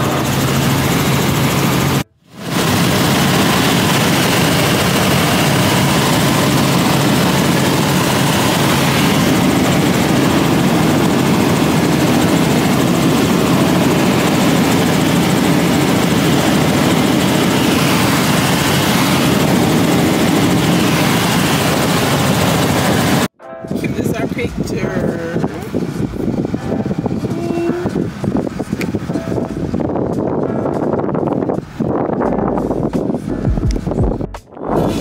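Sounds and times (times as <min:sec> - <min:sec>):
helicopter engine and rotor drone: 0:00.0 - 0:23.3, 0:23.9 - 0:32.2.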